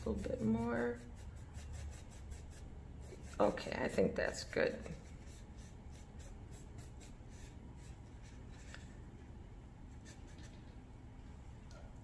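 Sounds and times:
paintbrush scratching on palette: 0.0 - 9.0, 9.9 - 10.6
low room hum: 0.0 - 12.0.

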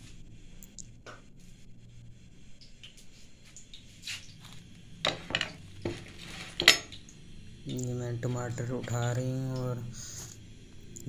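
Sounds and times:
low hum: 0.0 - 11.0
dishes clicking and knocking: 5.1 - 7.0.

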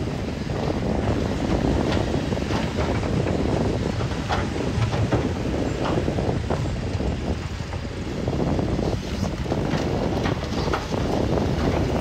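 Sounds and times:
steel tracks clanking: 0.6 - 8.4.

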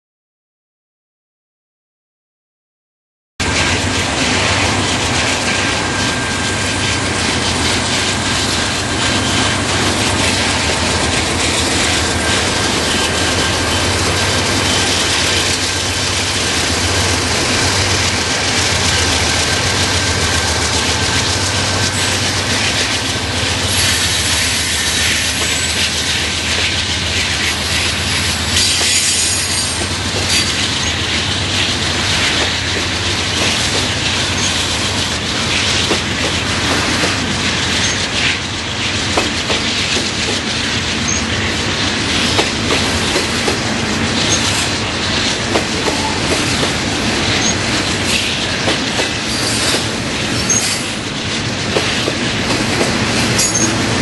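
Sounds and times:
freight train passing: 3.4 - 54.0
high wheel squeals: 27.8 - 31.0, 53.4 - 53.8.

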